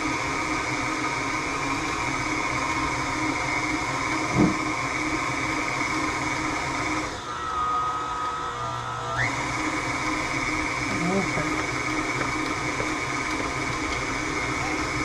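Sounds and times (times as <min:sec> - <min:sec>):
electric mixer motor whine: 0:00.0 - 0:15.0.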